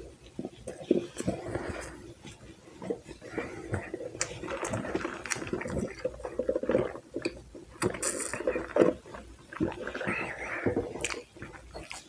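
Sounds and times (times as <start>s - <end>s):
sipping through a plastic straw: 0.0s - 12.0s
wet chewing and lip smacks: 0.2s - 12.0s.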